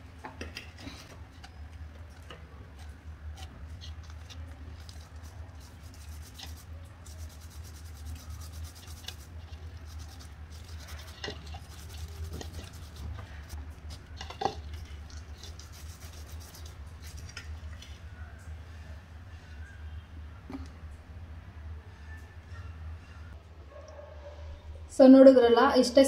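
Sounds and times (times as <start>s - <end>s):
steady low hum: 0.0s - 25.9s
lemon rubbing over corn cob: 2.8s - 18.0s.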